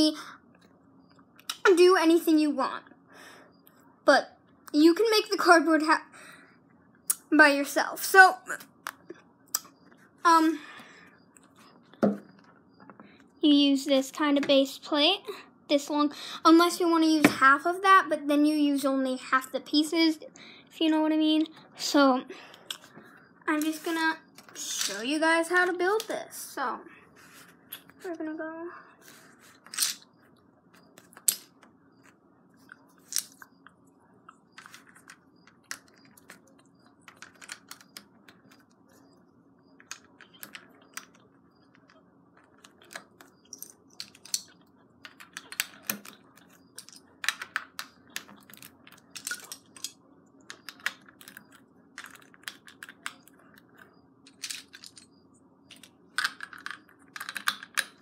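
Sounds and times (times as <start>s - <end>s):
plastic bricks clicking and clattering: 34.6s - 38.6s, 39.8s - 55.1s, 55.7s - 58.0s.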